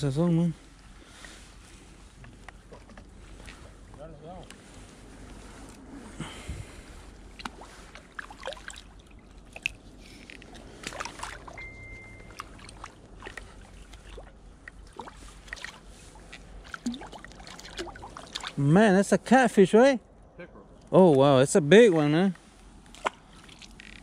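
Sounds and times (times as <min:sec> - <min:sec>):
fish splashing in water: 0:07.2 - 0:18.6, 0:22.9 - 0:24.0.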